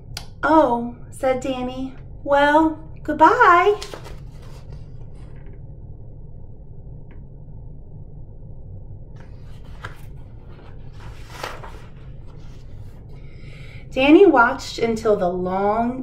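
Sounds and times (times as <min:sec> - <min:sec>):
low room hum: 0:00.0 - 0:16.0
paper rustling and page turning: 0:03.7 - 0:05.4, 0:09.2 - 0:13.2.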